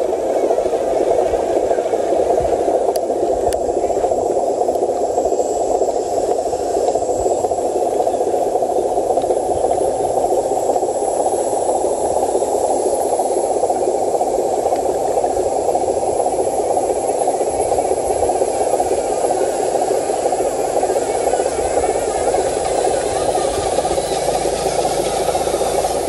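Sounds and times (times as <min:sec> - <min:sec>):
electric motors whirring: 0:22.0 - 0:26.0.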